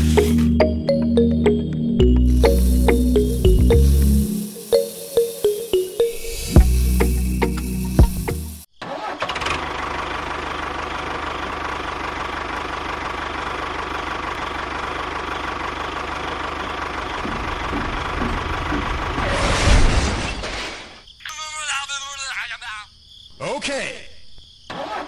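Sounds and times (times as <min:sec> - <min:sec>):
toy tractor motor chugging: 0:08.9 - 0:19.2.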